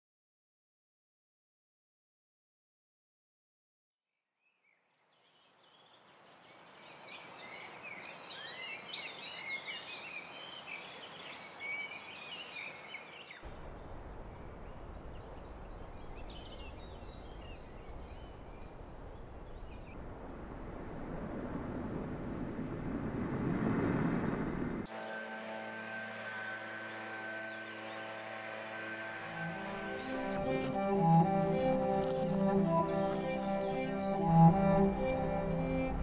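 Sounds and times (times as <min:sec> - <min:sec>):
steady low rumble: 0:13.5 - 0:24.9, 0:33.9 - 0:36.0.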